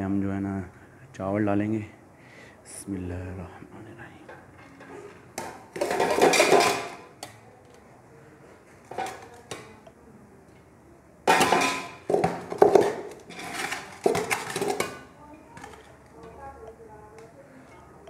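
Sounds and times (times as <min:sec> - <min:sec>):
plate scraping on steel: 0:13.3 - 0:14.0.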